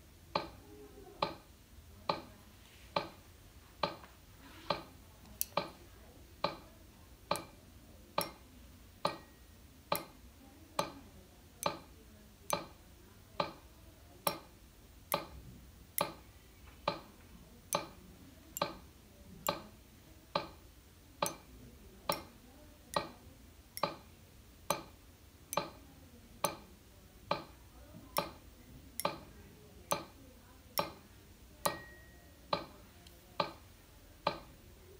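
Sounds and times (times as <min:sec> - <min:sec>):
metronome clicking: 0:08.2 - 0:08.4, 0:09.1 - 0:10.1, 0:14.3 - 0:14.5, 0:21.2 - 0:21.4, 0:25.5 - 0:25.8, 0:28.2 - 0:28.4, 0:29.0 - 0:29.3, 0:30.8 - 0:31.0, 0:31.6 - 0:33.6.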